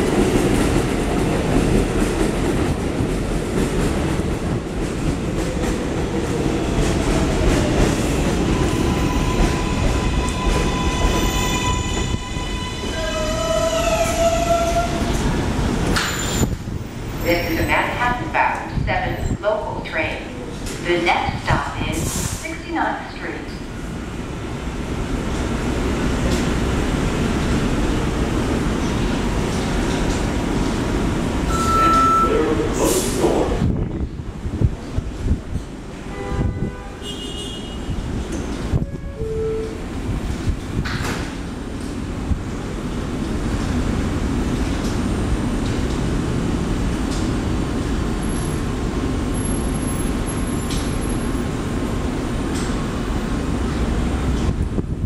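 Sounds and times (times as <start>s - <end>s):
subway train rumbling: 0.0s - 55.0s
short steady beep: 31.5s - 32.4s.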